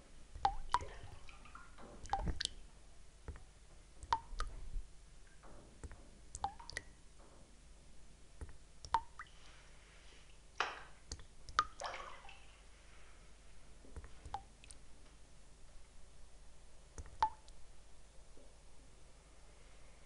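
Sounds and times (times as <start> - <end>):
water drops plinking into water: 0.4 - 2.6, 4.0 - 4.6, 6.3 - 7.0, 8.4 - 9.3, 10.6 - 12.4, 14.3 - 14.8, 17.0 - 17.6.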